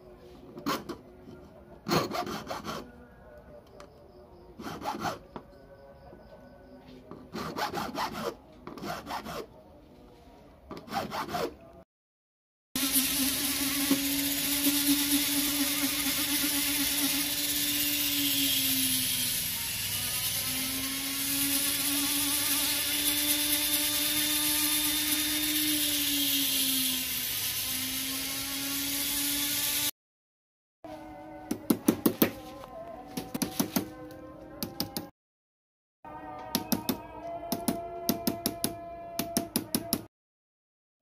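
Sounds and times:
rotary tool grinding metal: 0:12.8 - 0:29.9.

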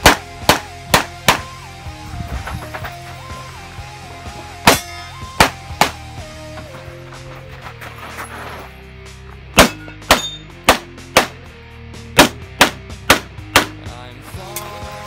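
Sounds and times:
pistol shots: 0:00.0 - 0:01.6, 0:09.6 - 0:11.4
background music: 0:00.0 - 0:15.0.

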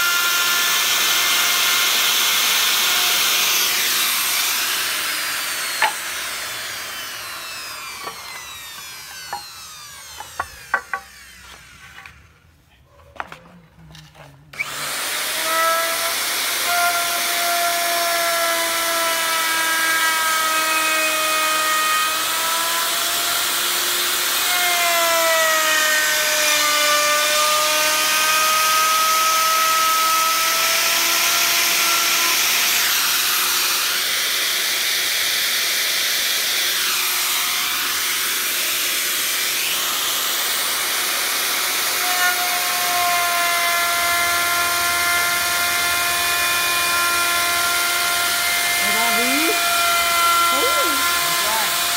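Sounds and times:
router bit cutting wood hiss: 0:00.0 - 0:12.2, 0:14.5 - 0:51.9
router motor whine: 0:00.0 - 0:12.2, 0:14.5 - 0:51.9.

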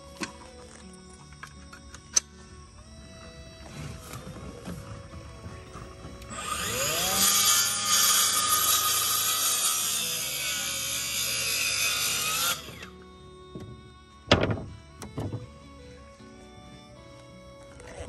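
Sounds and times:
circular saw cutting wood: 0:03.1 - 0:15.4.

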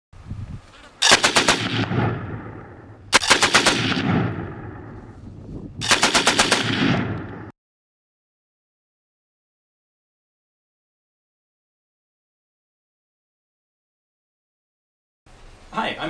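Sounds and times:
automatic gunfire bursts: 0:01.0 - 0:04.6, 0:05.8 - 0:07.5
gunshot echo: 0:01.0 - 0:05.1, 0:05.8 - 0:07.5.

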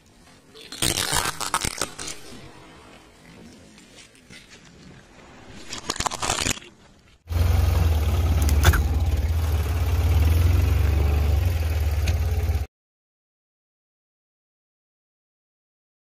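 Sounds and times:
plastic toy crackling and snapping: 0:00.6 - 0:02.5, 0:05.6 - 0:06.8
car engine idling: 0:07.3 - 0:12.7.

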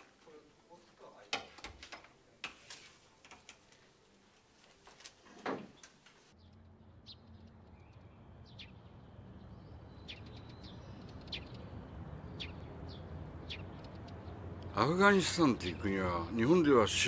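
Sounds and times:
high bird chirps: 0:06.4 - 0:16.4.

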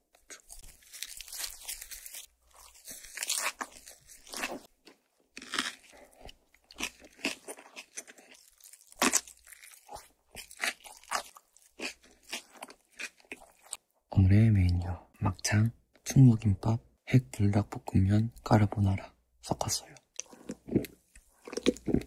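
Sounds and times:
chewing and crunching food: 0:00.0 - 0:13.8, 0:20.0 - 0:22.0.

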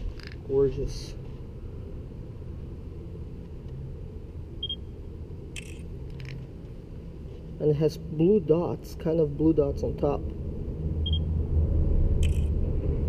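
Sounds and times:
steady low rumble: 0:00.0 - 0:13.0
camera shutter clicks: 0:05.6 - 0:06.4.

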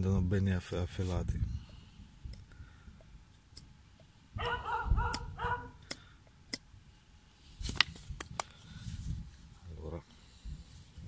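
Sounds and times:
dog barking: 0:04.4 - 0:05.8
knife cutting wood clicks: 0:05.1 - 0:06.7.

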